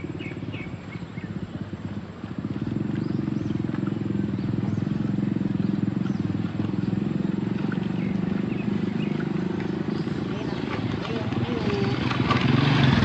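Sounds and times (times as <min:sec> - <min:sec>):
engine droning steadily: 0:00.0 - 0:13.0.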